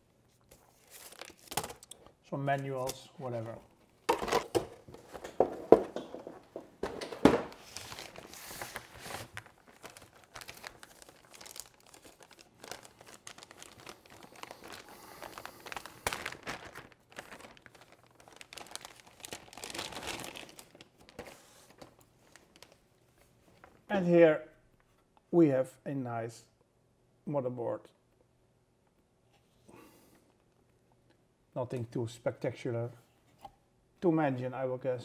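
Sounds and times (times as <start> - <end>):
paper and cardboard rustling: 0.3 - 1.9, 2.9 - 23.8
plastic bag crinkling: 5.1 - 22.8.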